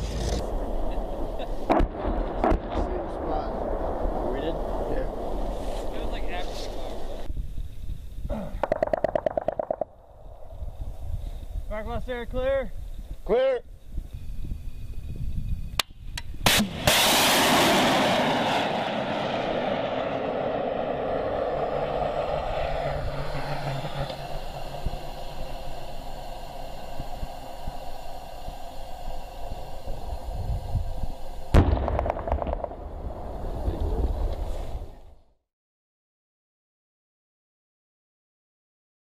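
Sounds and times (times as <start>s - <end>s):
rushing rocket motor: 0.0s - 0.7s, 16.5s - 34.7s
missile launch cracks: 0.0s - 7.2s, 16.4s - 27.4s, 31.5s - 35.0s
distant explosion: 0.0s - 7.3s, 16.4s - 28.5s, 31.5s - 35.2s.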